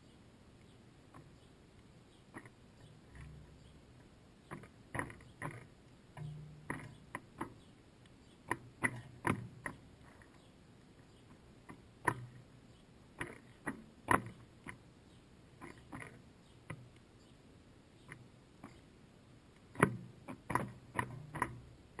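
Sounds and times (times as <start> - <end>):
bird pecking at seed: 15.6 - 17.1.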